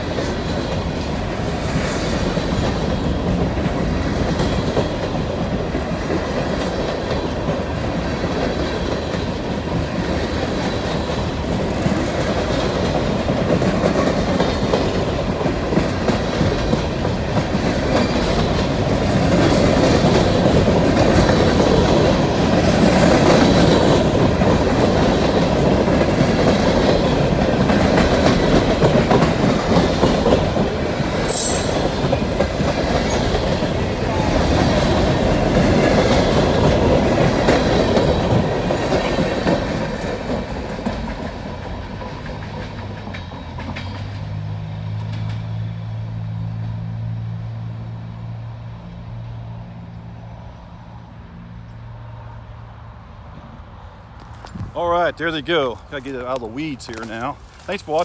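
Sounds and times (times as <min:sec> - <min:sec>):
train wheels clacking over rail joints: 0:00.0 - 0:45.7
high wheel squeal: 0:31.2 - 0:32.0.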